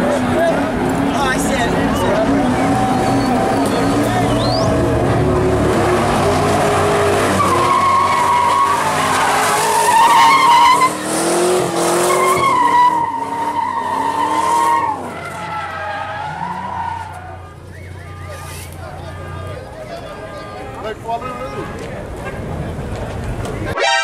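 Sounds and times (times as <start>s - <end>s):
car engine revving: 0.0s - 17.4s
tyres squealing: 1.4s - 5.0s, 5.9s - 19.6s.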